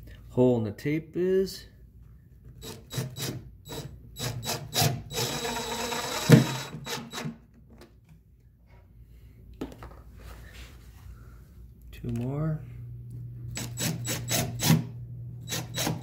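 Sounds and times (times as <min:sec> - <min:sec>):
impact driver driving screw: 0:02.6 - 0:07.4, 0:13.5 - 0:16.0.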